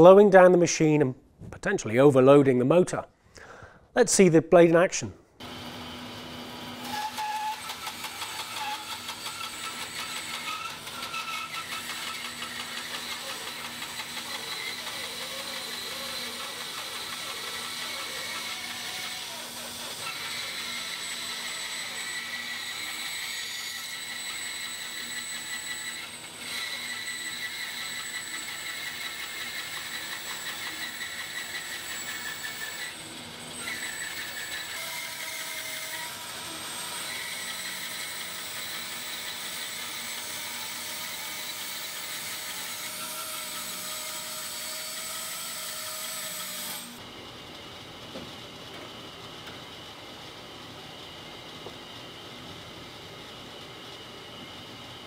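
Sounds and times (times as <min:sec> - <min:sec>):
bandsaw machine whine: 0:05.4 - 0:47.9.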